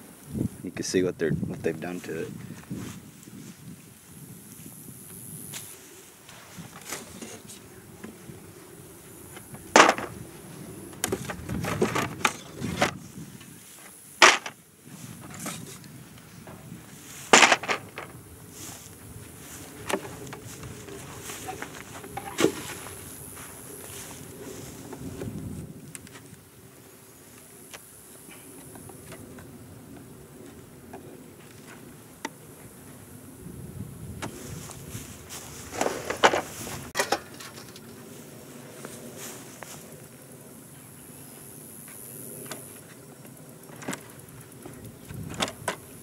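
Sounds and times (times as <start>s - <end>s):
honey bees buzzing: 1.9s - 37.0s
hive tool scraping wooden frames: 6.3s - 8.2s, 9.4s - 10.3s, 10.9s - 13.0s, 17.2s - 18.8s.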